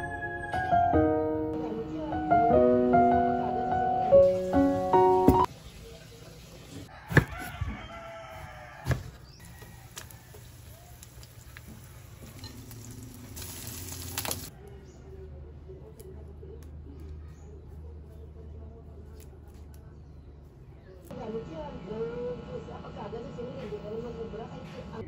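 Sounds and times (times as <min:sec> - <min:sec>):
rooster crowing: 0:06.9 - 0:10.9.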